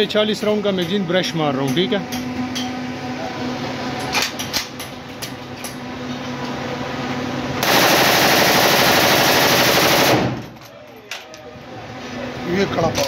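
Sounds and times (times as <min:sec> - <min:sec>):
assault rifle full-automatic burst: 0:07.6 - 0:10.4
rifle shots sharp cracks: 0:07.6 - 0:10.5.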